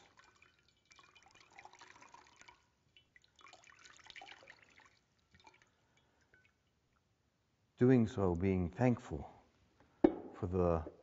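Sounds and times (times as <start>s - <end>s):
water splashing into basin: 0.0s - 6.6s.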